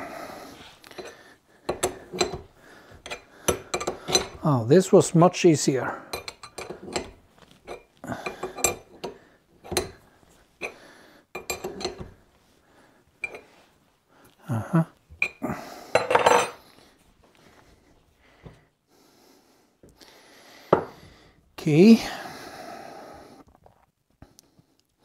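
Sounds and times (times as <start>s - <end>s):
metal clinks and knocks: 0.9s - 4.4s, 6.1s - 10.0s, 11.4s - 12.1s.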